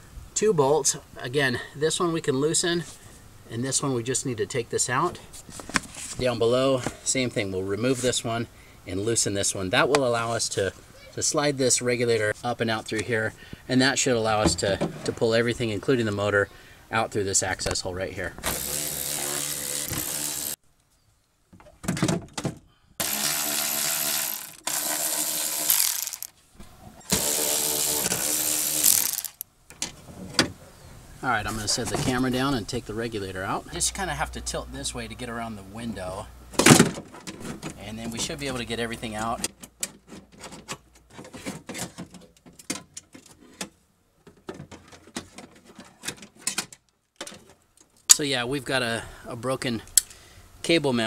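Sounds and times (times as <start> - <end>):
cordless ratchet motor whine: 18.5 - 20.6, 23.0 - 26.3, 27.1 - 29.4.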